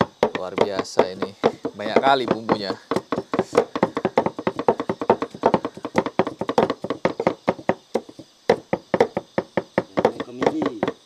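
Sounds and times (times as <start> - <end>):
knife chopping on board: 0.0 - 7.3, 8.0 - 11.0.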